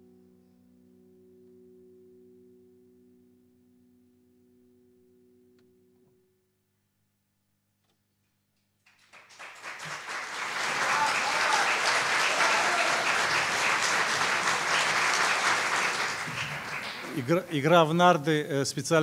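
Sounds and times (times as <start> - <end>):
audience applauding: 8.9 - 18.0.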